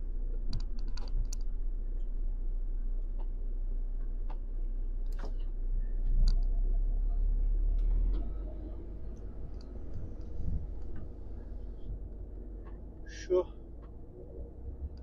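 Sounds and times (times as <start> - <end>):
low steady hum: 0.0 - 15.0
small clicks and ticks: 0.5 - 2.2, 9.1 - 11.6.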